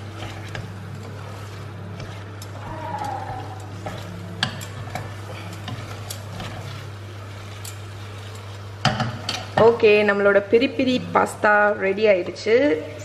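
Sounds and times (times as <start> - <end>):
spoon stirring pasta in sauce: 0.0 - 9.9
steady low hum: 0.0 - 13.0.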